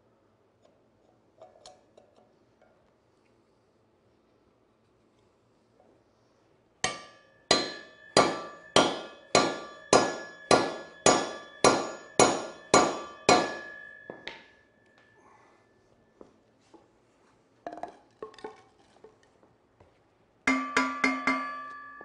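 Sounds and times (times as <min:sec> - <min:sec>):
hammer striking steel: 0:06.8 - 0:14.6, 0:20.5 - 0:22.0.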